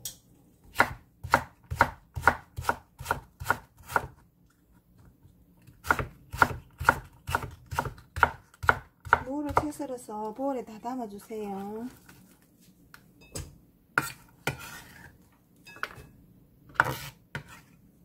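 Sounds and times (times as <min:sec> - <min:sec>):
knife chopping on wooden board: 0:00.7 - 0:04.2, 0:05.8 - 0:09.8, 0:14.0 - 0:15.1, 0:16.7 - 0:17.6.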